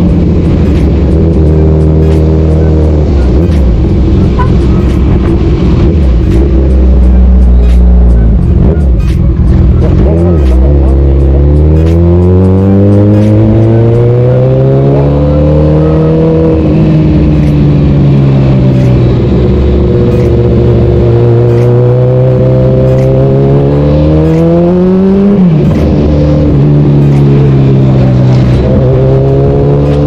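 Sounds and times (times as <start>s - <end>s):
steady rushing noise: 0.0s - 14.1s, 22.8s - 30.0s
motorcycle engine revving: 0.0s - 30.0s.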